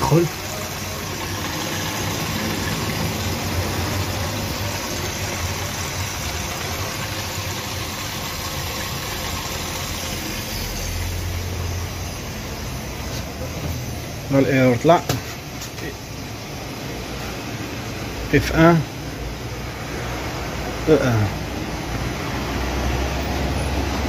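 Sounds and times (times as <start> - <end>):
water hissing: 0.0 - 14.7
dishwasher humming: 0.0 - 24.0.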